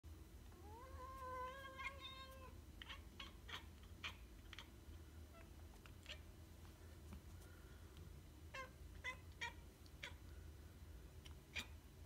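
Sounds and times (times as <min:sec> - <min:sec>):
cat meowing: 0:00.6 - 0:04.7
cat chirping: 0:00.6 - 0:06.3.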